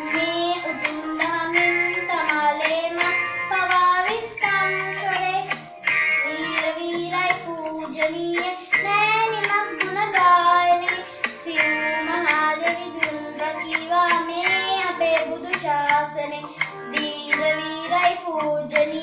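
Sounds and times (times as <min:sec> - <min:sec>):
musical accompaniment: 0:00.0 - 0:19.0.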